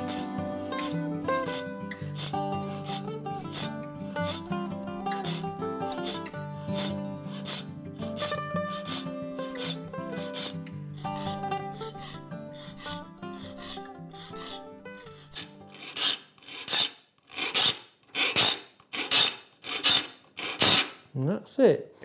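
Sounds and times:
file rasping saw teeth: 0:00.0 - 0:04.5, 0:05.1 - 0:21.0
soft background music: 0:00.0 - 0:15.8.

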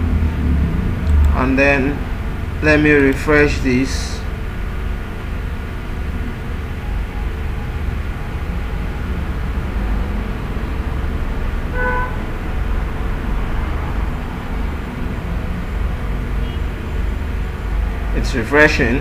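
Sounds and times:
faint hum: 0:00.0 - 0:19.0
low background rumble: 0:00.0 - 0:19.0
short pitched tone: 0:06.1 - 0:12.4.

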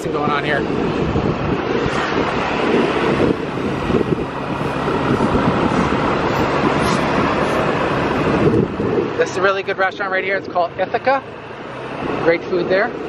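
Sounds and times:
wind rumble on microphone: 0:00.0 - 0:13.0
scooter engine running: 0:00.7 - 0:09.2.

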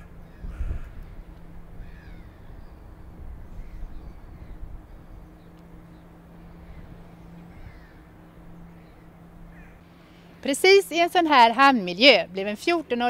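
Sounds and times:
birds calling: 0:00.0 - 0:10.5
low outdoor rumble: 0:00.0 - 0:13.0.

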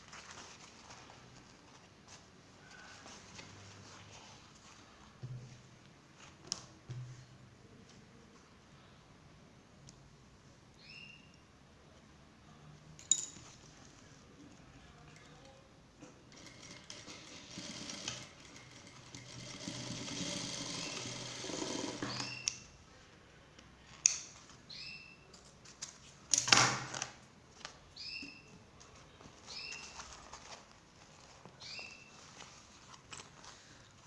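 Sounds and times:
sewing machine stitching: 0:16.3 - 0:22.5.

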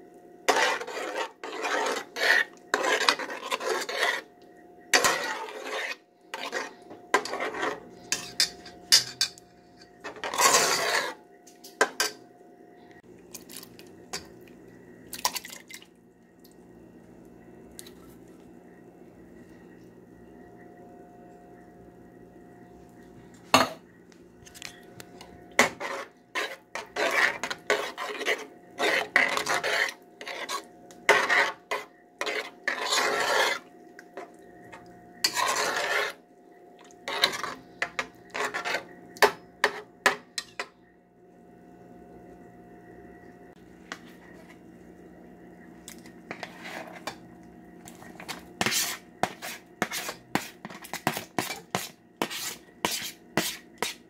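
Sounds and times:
faint steady hum: 0:00.0 - 0:54.0
onions scraped off a plate: 0:00.5 - 0:04.3, 0:04.9 - 0:09.2, 0:10.1 - 0:11.2, 0:25.6 - 0:34.3, 0:35.2 - 0:36.2, 0:37.1 - 0:38.9, 0:48.6 - 0:54.0
spoon scraping a cooking pot: 0:00.5 - 0:04.3, 0:04.9 - 0:12.2, 0:25.6 - 0:36.2, 0:37.0 - 0:40.7, 0:46.3 - 0:47.2, 0:47.9 - 0:54.0.

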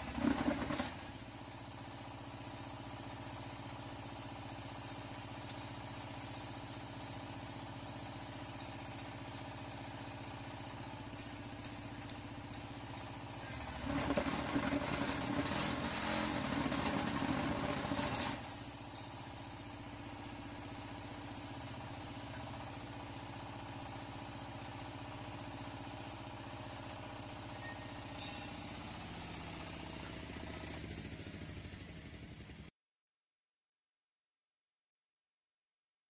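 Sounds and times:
diesel engine running: 0:00.0 - 0:32.7
machine clattering: 0:10.9 - 0:19.6.

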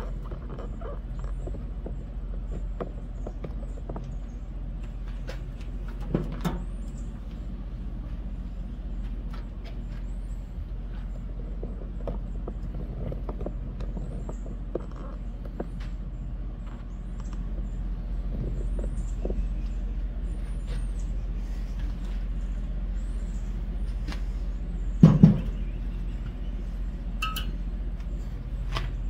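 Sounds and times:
steady low hum: 0:00.0 - 0:29.0
grill lid clank: 0:27.2 - 0:27.6.

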